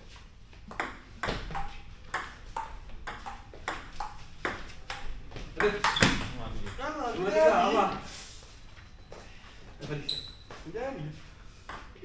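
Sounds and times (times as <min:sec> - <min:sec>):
ping pong ball hits: 0:00.7 - 0:07.6, 0:11.7 - 0:12.0.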